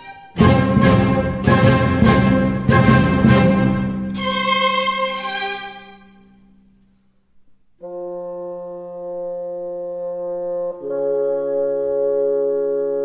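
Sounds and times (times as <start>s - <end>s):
orchestral music: 0.0s - 6.4s
brass chord: 0.2s - 6.6s, 7.8s - 13.0s.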